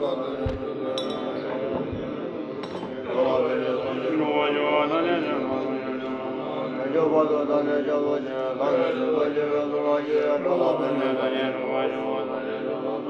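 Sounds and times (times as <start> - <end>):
voices chanting in low drone: 0.0 - 13.0.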